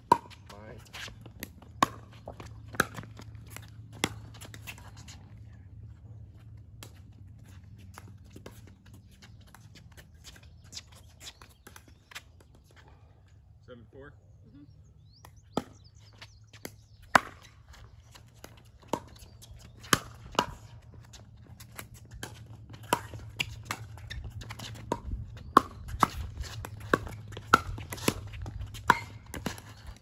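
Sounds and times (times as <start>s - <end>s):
ball bouncing on court: 0.0s - 5.1s, 16.6s - 17.5s, 19.8s - 30.0s.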